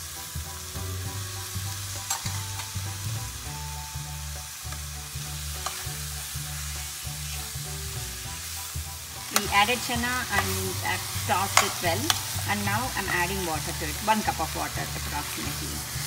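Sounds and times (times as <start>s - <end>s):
food sizzling in a pot: 0.0s - 16.0s
spatula stirring and scraping: 4.7s - 16.0s.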